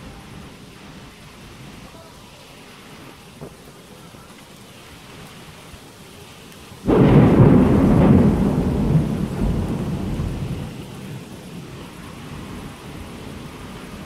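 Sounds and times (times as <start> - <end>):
steady rain: 0.0 - 14.0
thunder crack and rumble: 6.8 - 14.0.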